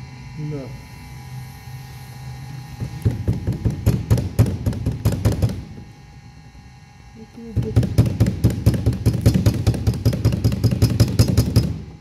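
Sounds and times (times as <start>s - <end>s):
low steady hum: 0.0s - 12.0s
sharp metal knocks and clacks: 7.7s - 11.8s.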